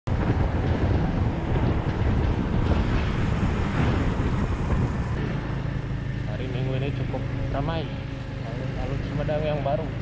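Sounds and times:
wind on microphone: 0.1s - 5.4s
motorcycle engine: 0.1s - 10.0s
road noise: 0.1s - 10.0s.

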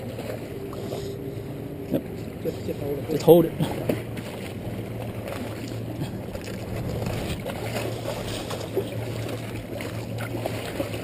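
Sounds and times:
low steady hum: 0.0s - 11.0s
waves splashing against rocks: 3.1s - 11.0s
wind on microphone: 6.6s - 8.6s.

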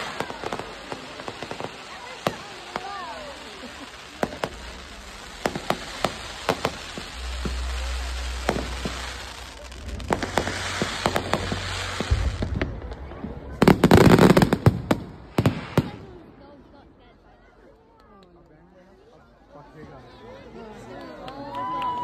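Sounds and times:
firework shells bursting: 0.0s - 13.0s.

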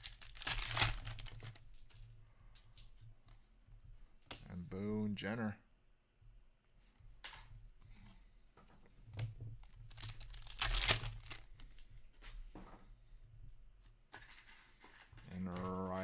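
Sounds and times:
foil wrapper tearing: 0.0s - 1.6s, 9.6s - 11.8s
foil crinkling: 0.0s - 2.0s, 9.6s - 11.9s.

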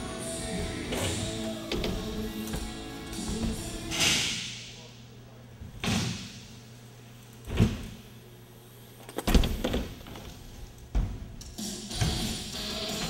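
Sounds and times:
steady low hum: 0.0s - 13.0s
bike thudding on wooden ramp: 0.7s - 3.8s, 9.3s - 11.4s.

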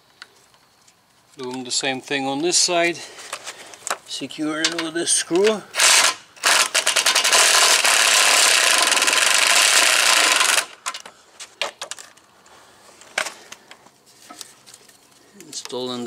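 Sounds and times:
handling clicks and knocks: 3.3s - 5.6s
impact driver rattling: 4.7s - 12.1s.

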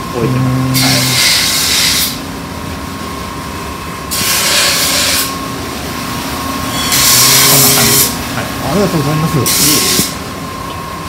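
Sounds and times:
motor humming: 0.0s - 2.1s.

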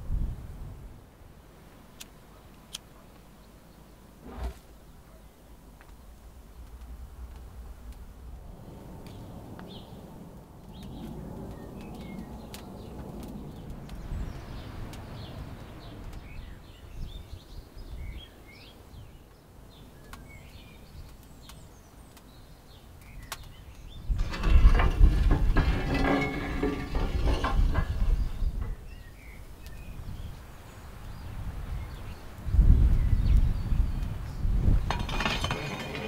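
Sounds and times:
small birds chirping: 9.1s - 24.2s, 26.8s - 36.0s.

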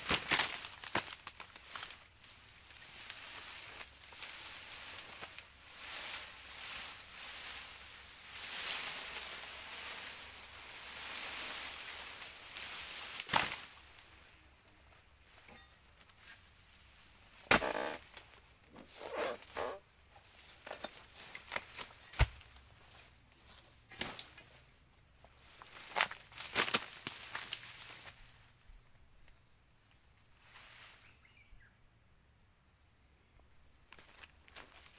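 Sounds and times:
rustling: 0.0s - 14.2s
insects chirring: 0.0s - 34.9s.

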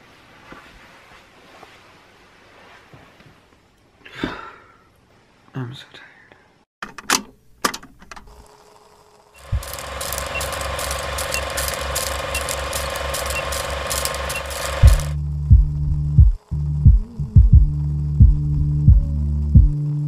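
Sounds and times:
film projector clatter: 7.7s - 15.2s
sharp clicks: 9.4s - 15.2s.

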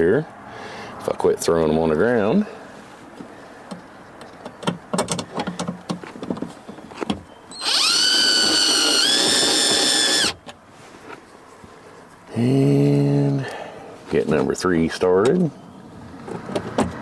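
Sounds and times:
power drill driving screw: 7.5s - 10.4s
screws clicking and rattling: 7.6s - 10.4s.

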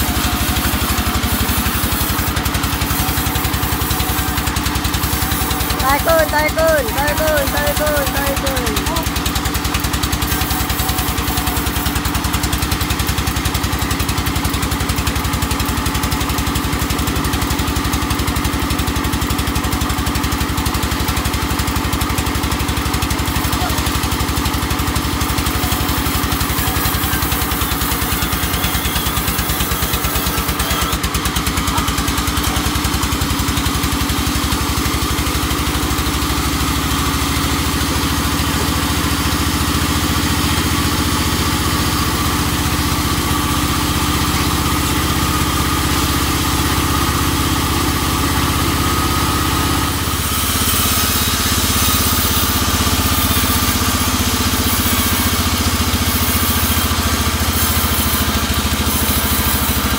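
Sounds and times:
sawmill engine running: 0.0s - 59.9s.

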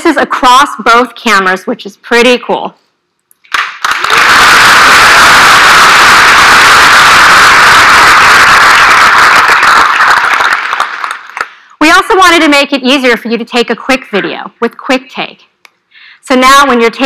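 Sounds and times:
audience applauding: 3.5s - 11.6s.

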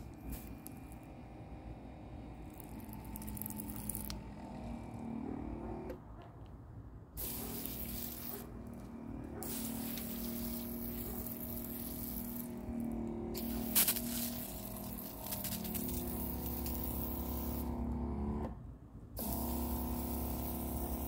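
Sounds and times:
water spraying from hose: 0.0s - 1.1s, 2.5s - 4.2s, 7.2s - 8.5s, 9.4s - 17.9s, 19.2s - 21.0s.

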